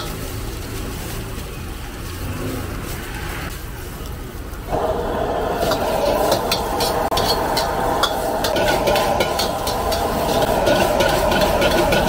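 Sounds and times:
stir-frying roar in a wok: 0.0s - 12.0s
metal ladle scraping a wok: 5.4s - 12.0s.

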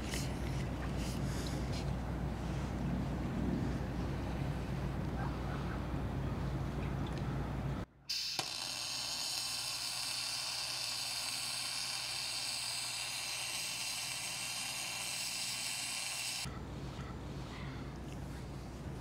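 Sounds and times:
welding arc sizzling: 8.1s - 16.5s.

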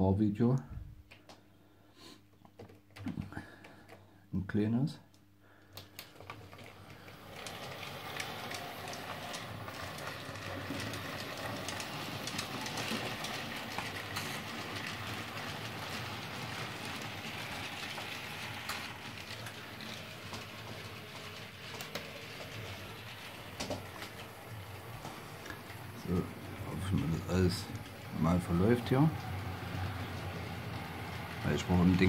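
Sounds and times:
model train running on track: 6.8s - 32.0s.

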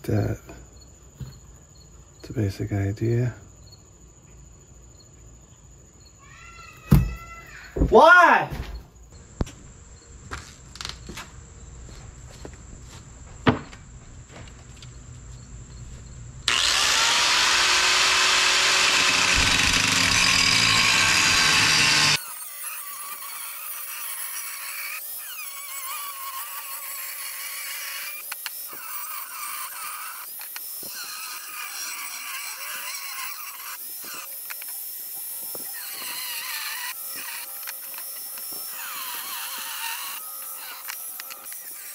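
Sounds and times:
sharp thump: 6.9s - 7.2s
high-pitched grinding whine: 16.0s - 41.9s
angle grinder cutting steel: 16.5s - 41.9s.

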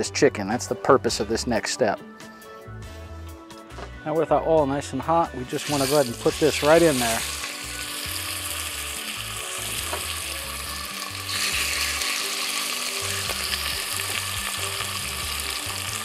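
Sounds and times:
chicken sizzling in oil: 5.5s - 16.0s.

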